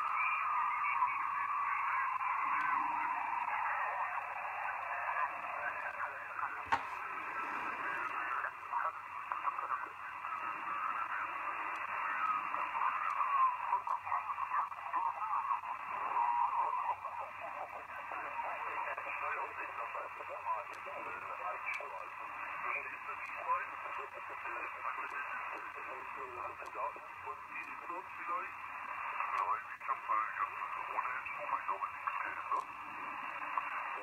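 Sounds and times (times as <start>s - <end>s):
radio hiss and sideband signals: 0.0s - 34.0s.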